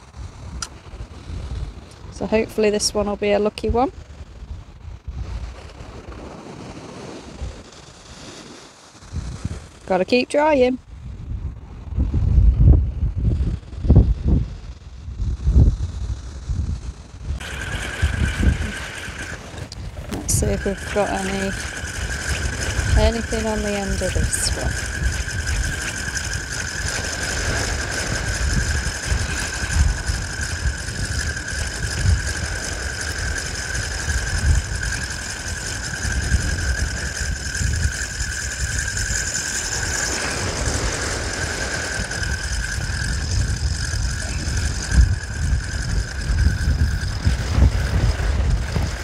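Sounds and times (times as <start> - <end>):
wind buffeting microphone: 0.0 - 8.2, 9.0 - 49.0
low rumble: 10.8 - 49.0
high-pitched whine: 15.9 - 49.0.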